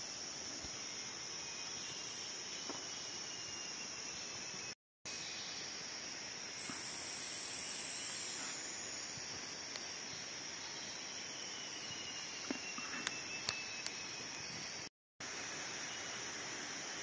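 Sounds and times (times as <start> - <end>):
insect chorus shrill drone: 0.0 - 17.0
higher insect voice: 6.6 - 14.9.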